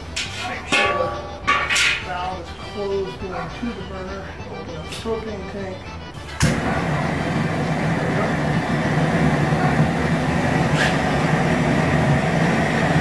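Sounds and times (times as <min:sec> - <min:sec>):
gas burner flame rushing: 0:06.3 - 0:13.0.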